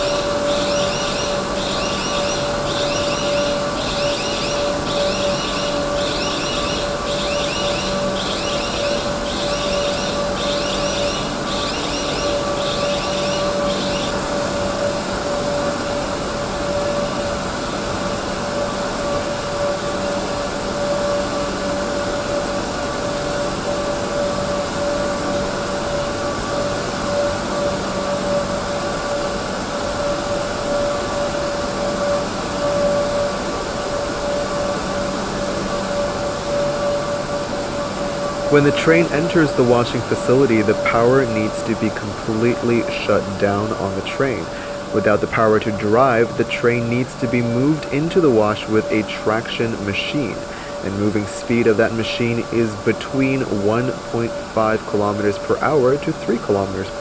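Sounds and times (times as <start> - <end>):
high electronic chirp: 0.0 - 14.7
steady hum: 0.0 - 57.0
washing machinery whirring hiss: 0.0 - 57.0.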